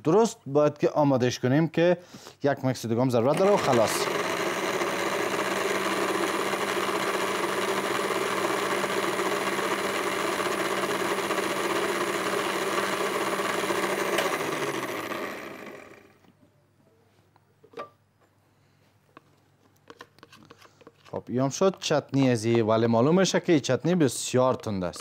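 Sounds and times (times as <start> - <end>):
blender motor whirring: 3.2 - 16.2.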